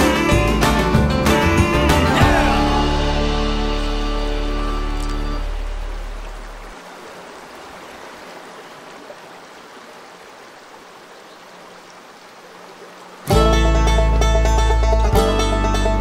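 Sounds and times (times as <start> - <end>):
music: 0.0 - 6.2, 13.3 - 16.0
river water rushing: 1.8 - 15.1.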